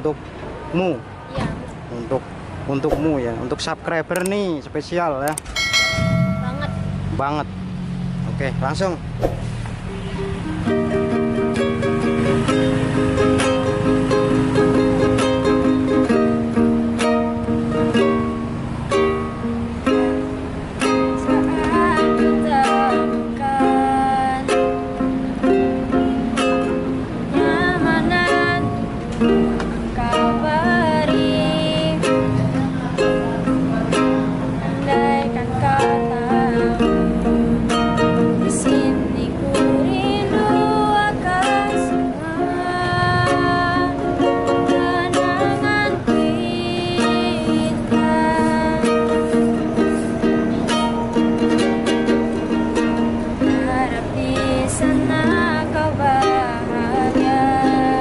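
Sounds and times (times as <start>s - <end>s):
ukulele strumming chords: 5.3s - 8.3s, 9.3s - 58.0s
woman singing pop ballad: 29.8s - 32.0s, 53.5s - 58.0s.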